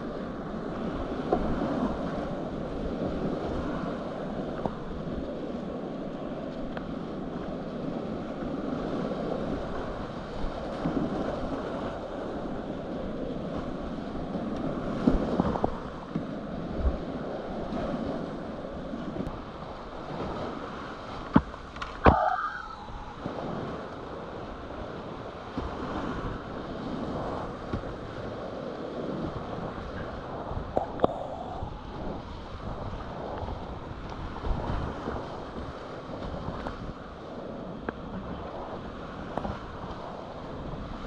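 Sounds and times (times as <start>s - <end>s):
whitewater rapids rushing: 22.0s - 23.8s.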